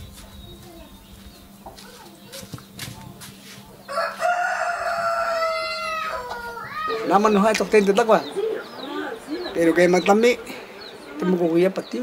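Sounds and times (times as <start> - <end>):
rooster crowing: 3.9 - 7.0.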